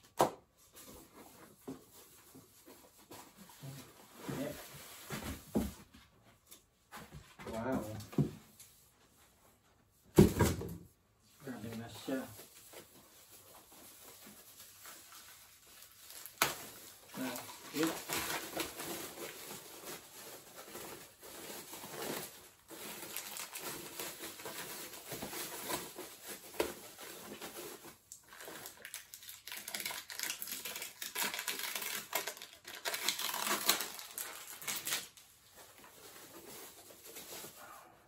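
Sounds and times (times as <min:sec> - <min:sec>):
packaging rustling and crinkling: 0:11.7 - 0:37.9.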